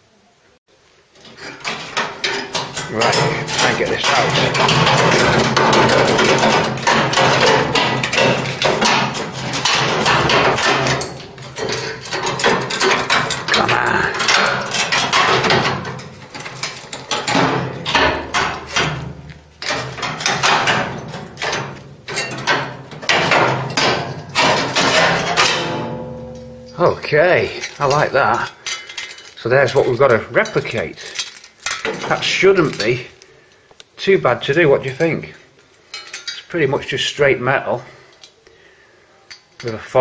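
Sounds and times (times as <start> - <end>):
hammer striking sheet metal: 1.6 - 27.1.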